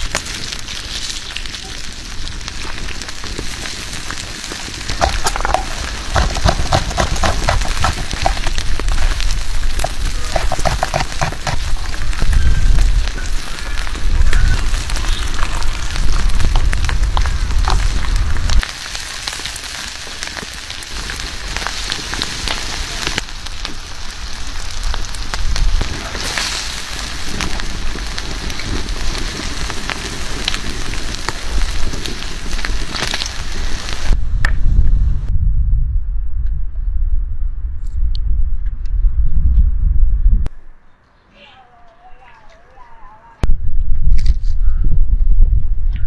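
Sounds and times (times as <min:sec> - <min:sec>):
food sizzling on hot stone: 0:00.0 - 0:34.2
low rumble: 0:34.1 - 0:40.8.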